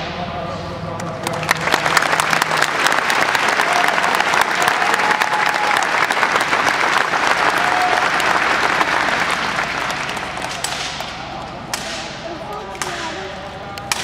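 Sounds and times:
audience applauding: 1.1s - 11.4s.

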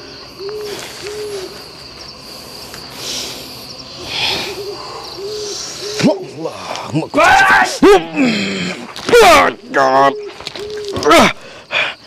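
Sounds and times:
owl hooting: 0.0s - 6.5s, 9.6s - 11.2s
high insect trill: 0.0s - 12.0s.

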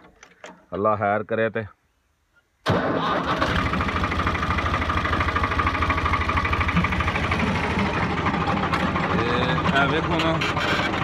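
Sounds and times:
tractor diesel engine running: 2.7s - 11.0s.

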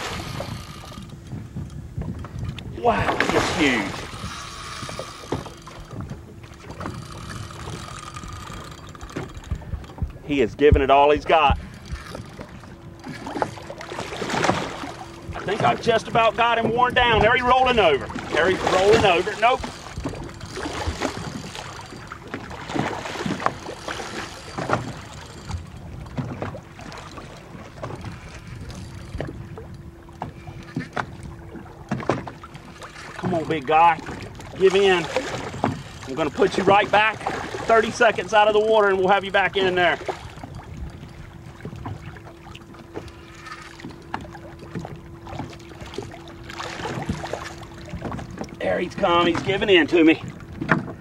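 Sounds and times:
faint hum: 0.0s - 51.0s
water splashing against boat: 0.0s - 51.0s
fish splashing: 2.8s - 10.4s, 11.6s - 15.9s, 40.0s - 48.6s.

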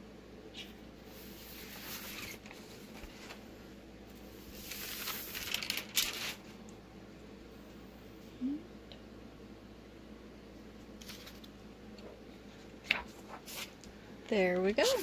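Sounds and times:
paper crinkling and rustling: 1.4s - 3.4s, 4.2s - 6.6s, 11.0s - 11.6s, 12.8s - 13.8s.

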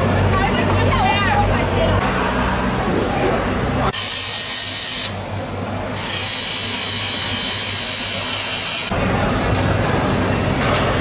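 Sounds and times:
knife on grinding wheel: 6.0s - 8.9s.

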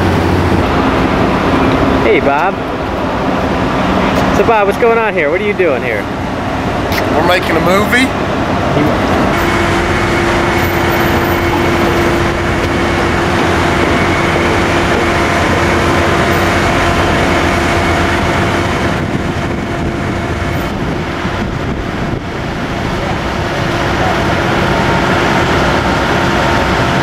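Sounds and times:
machinery hum: 0.0s - 27.0s.

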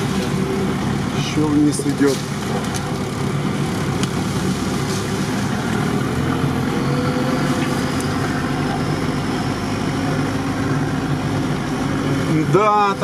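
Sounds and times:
off-road vehicle engine running: 0.0s - 13.0s.

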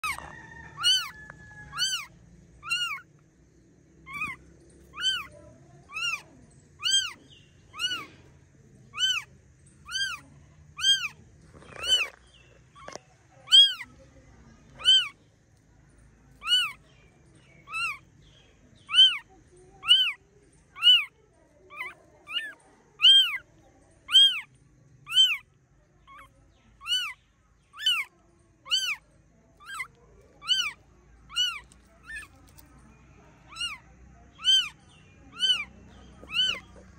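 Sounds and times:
kitten mewing: 1.7s - 3.0s, 4.1s - 5.3s, 5.9s - 6.2s, 6.8s - 8.1s, 8.9s - 10.2s, 10.8s - 12.2s, 12.8s - 13.9s, 14.8s - 15.2s, 18.9s - 19.2s, 19.8s - 20.2s, 21.7s - 23.4s, 24.1s - 24.5s, 25.1s - 25.4s, 26.1s - 27.2s, 28.7s - 29.0s, 29.6s - 32.6s, 33.5s - 33.8s, 34.4s - 36.8s.

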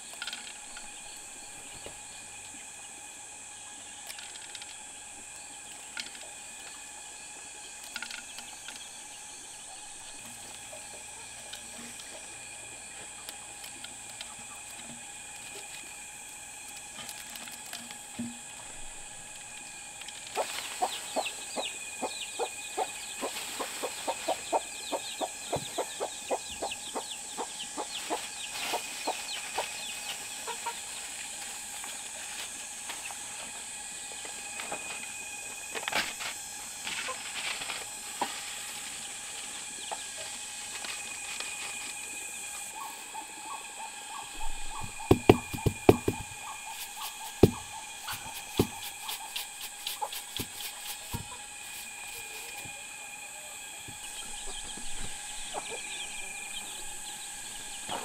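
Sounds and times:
steady high-pitched tones: 18.6s - 58.0s
chickens clucking: 20.3s - 30.8s, 54.2s - 56.0s.

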